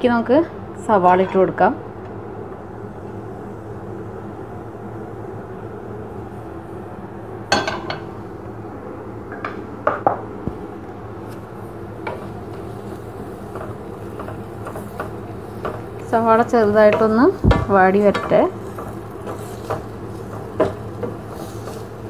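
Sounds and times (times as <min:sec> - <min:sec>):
low background hum: 0:00.0 - 0:22.0
utensils knocking on frying pan: 0:07.5 - 0:08.1, 0:12.0 - 0:22.0.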